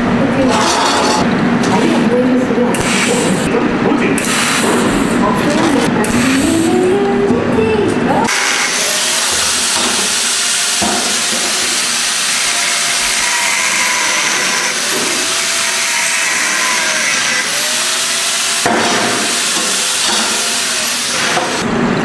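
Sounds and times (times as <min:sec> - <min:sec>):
angle grinder grinding steel: 0:00.5 - 0:01.3, 0:08.3 - 0:21.6.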